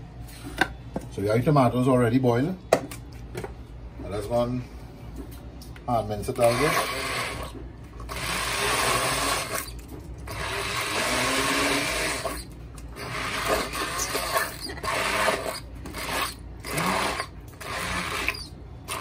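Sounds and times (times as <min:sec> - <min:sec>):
immersion blender pulsing: 0:06.4 - 0:09.7, 0:10.3 - 0:19.0.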